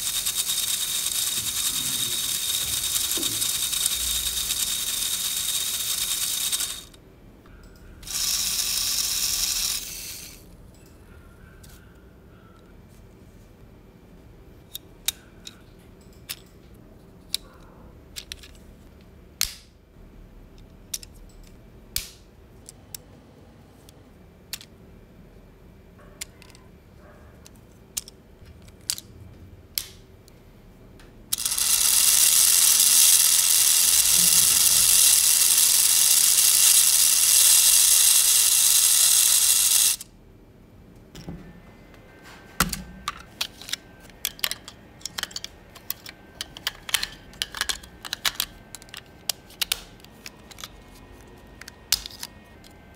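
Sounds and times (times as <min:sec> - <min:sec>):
plastic gears whirring: 0:00.0 - 0:07.0, 0:08.0 - 0:10.5, 0:31.3 - 0:40.1, 0:43.4 - 0:52.8
plastic parts clicking together: 0:14.7 - 0:16.5, 0:18.1 - 0:18.6, 0:20.6 - 0:22.8, 0:24.5 - 0:24.7, 0:26.2 - 0:26.6, 0:27.4 - 0:29.1, 0:42.6 - 0:52.8.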